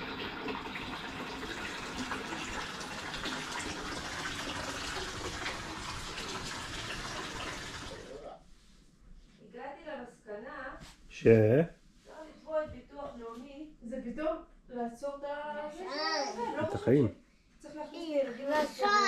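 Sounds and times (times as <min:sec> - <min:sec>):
water running from a tap: 0:00.0 - 0:08.2.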